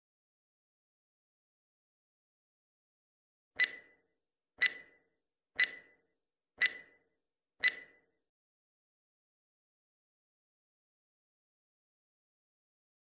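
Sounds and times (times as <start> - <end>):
clock-like ticks with metallic ring: 3.6 - 4.0, 4.6 - 8.1.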